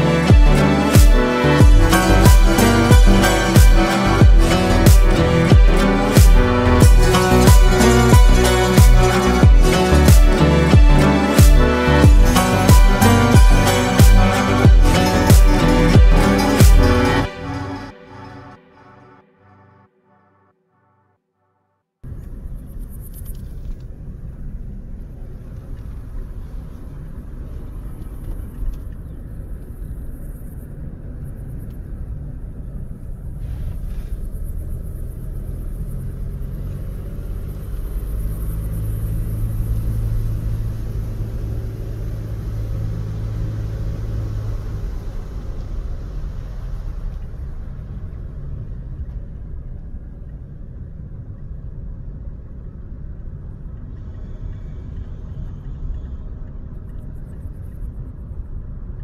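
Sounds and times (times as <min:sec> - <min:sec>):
motor vehicle running: 0:00.0 - 0:19.0, 0:33.7 - 0:51.4.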